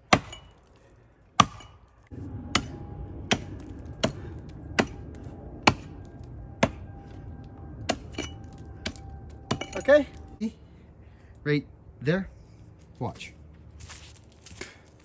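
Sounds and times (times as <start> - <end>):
axe chopping into tree trunk: 0.0 - 0.6, 1.4 - 1.8, 5.6 - 5.9.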